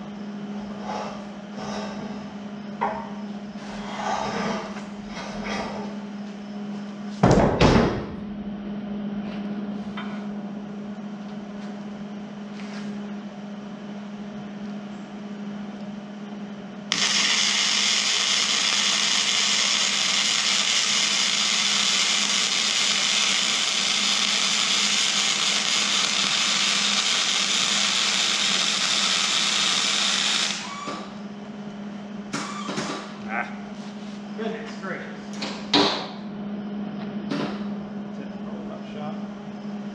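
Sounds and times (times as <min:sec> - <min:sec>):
loud knock: 0:07.2 - 0:08.1
arc welding hiss: 0:16.9 - 0:31.0.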